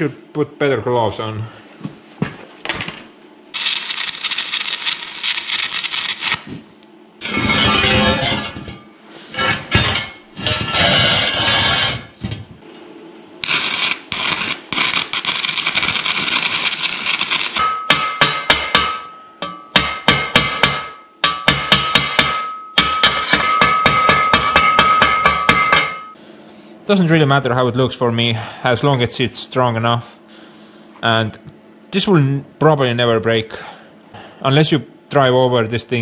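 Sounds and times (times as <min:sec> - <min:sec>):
arc welding crackling: 0:03.5 - 0:06.8, 0:13.4 - 0:17.7
chipping hammer striking steel: 0:17.4 - 0:26.2.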